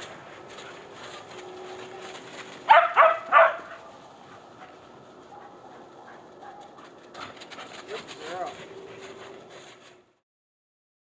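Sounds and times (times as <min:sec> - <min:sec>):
dog barking: 0:02.7 - 0:03.9, 0:05.3 - 0:06.9.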